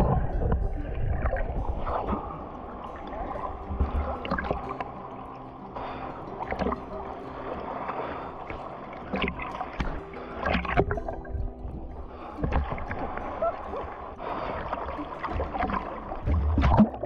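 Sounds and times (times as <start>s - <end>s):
moving water: 0.0s - 17.0s
water splashing and sloshing: 0.0s - 17.0s
sharp splashes or knocks: 15.2s - 17.0s.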